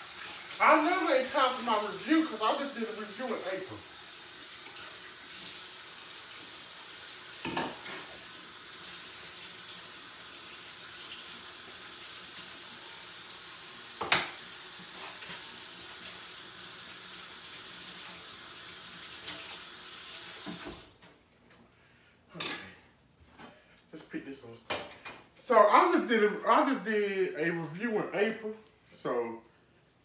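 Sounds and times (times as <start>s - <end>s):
tap water running into sink: 0.0s - 20.9s.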